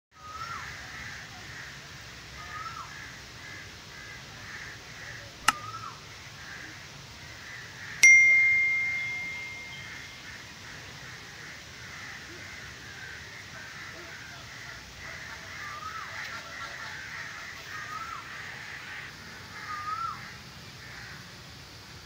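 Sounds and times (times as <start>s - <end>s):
bright bell ding: 8.0s - 10.2s.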